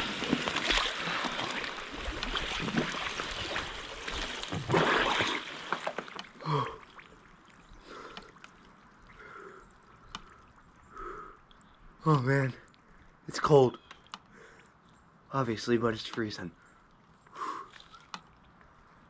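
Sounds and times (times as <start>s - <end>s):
water sloshing in a tub: 0.0s - 10.9s, 16.9s - 18.6s
person gasping: 6.4s - 6.8s
quiet breathing: 7.7s - 11.6s, 14.2s - 14.9s, 16.6s - 18.0s.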